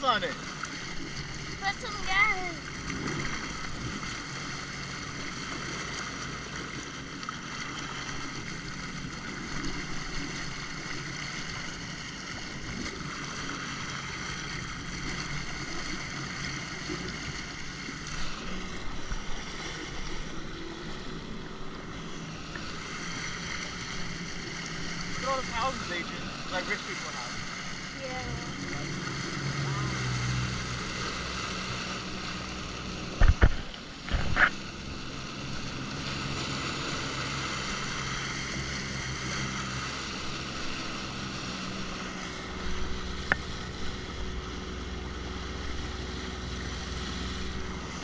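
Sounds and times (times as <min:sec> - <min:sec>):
jet ski engine running: 0:00.0 - 0:48.0.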